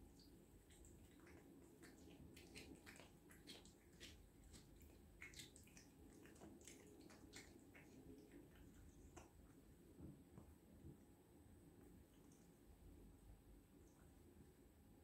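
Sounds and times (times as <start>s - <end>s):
cat eating wet smacking: 0.1s - 9.6s.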